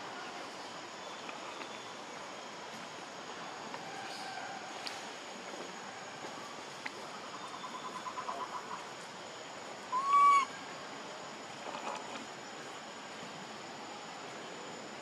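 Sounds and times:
forest hiss: 6.4s - 11.2s
monkey coo call: 7.2s - 8.9s, 9.9s - 10.6s.

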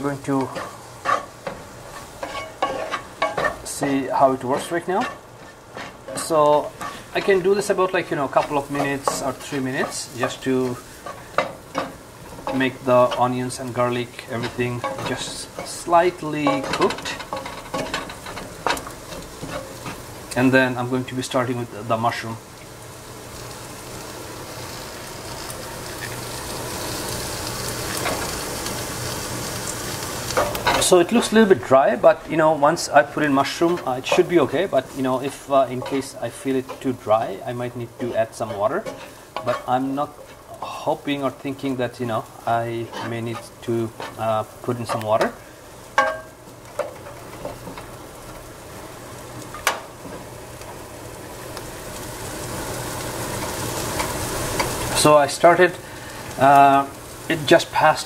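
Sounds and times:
food sizzling in oil: 0.0s - 58.0s
kitchen vent fan hum: 0.0s - 58.0s
spatula scraping pan: 0.2s - 20.2s, 30.2s - 45.4s.

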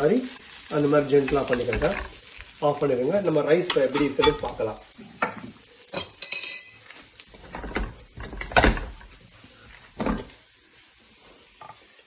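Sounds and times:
pressure cooker metal clanks: 1.2s - 2.2s, 3.7s - 4.5s.

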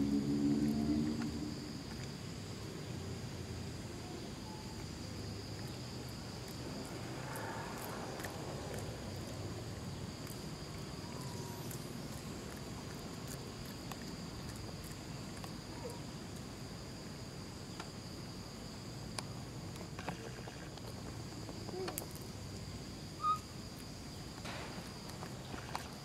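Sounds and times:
high-pitched insect drone: 23.1s - 23.5s
short high chirp: 23.2s - 23.4s.

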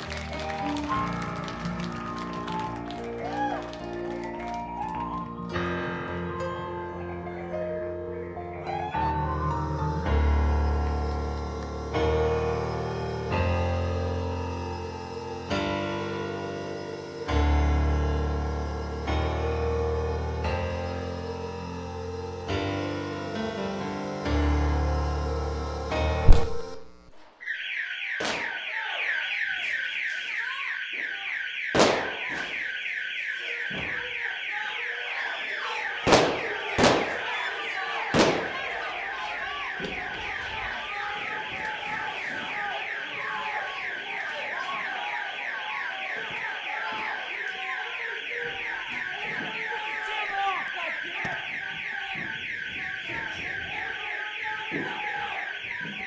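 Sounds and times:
music: 0.0s - 27.0s
crowd voices: 0.0s - 27.3s, 28.8s - 56.0s
warbling electronic alarm: 0.6s - 5.6s, 24.2s - 56.0s
sharp bangs: 28.1s - 30.0s, 30.8s - 34.5s, 35.8s - 44.2s.

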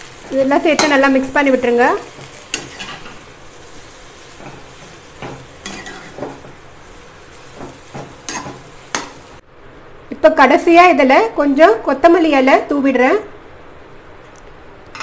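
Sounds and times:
faint sizzle: 0.0s - 9.4s
spatula scraping a metal pan: 2.1s - 6.5s.

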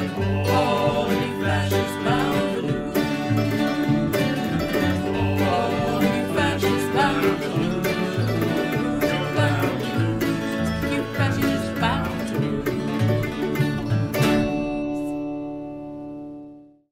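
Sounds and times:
electric bass: 0.0s - 16.4s
electric guitar: 0.0s - 16.7s
acoustic guitar strumming: 0.0s - 16.8s
mandolin: 0.0s - 16.8s.

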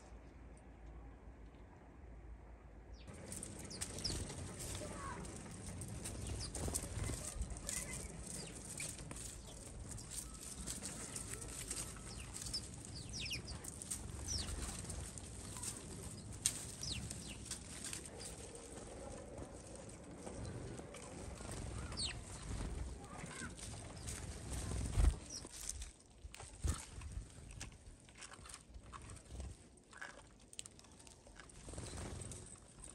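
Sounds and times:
sparrows chirping: 2.9s - 25.6s
birds clicking on wooden feeder: 3.1s - 24.4s.

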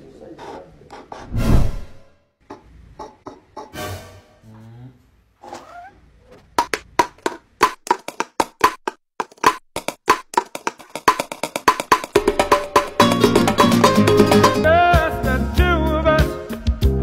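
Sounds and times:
wood block taps: 2.4s - 3.7s, 6.6s - 12.2s.

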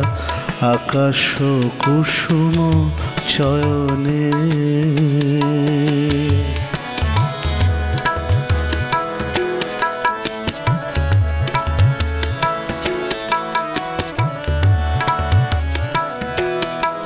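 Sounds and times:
harmonium melody: 0.0s - 17.0s
tabla strokes: 0.0s - 17.0s.

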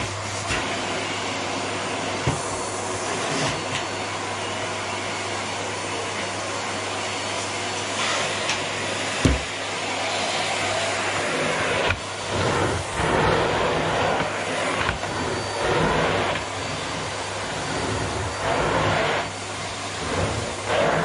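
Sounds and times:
vacuum cleaner humming: 0.0s - 21.0s
thump: 9.2s - 9.5s.

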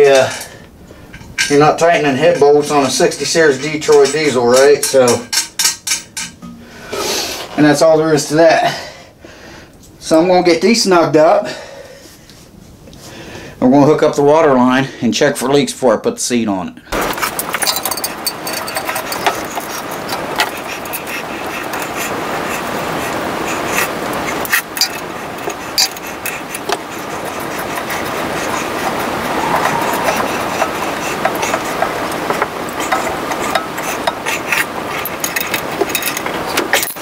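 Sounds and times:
small clicks and clinks: 17.1s - 21.1s
steady hissing rush: 23.2s - 35.4s.

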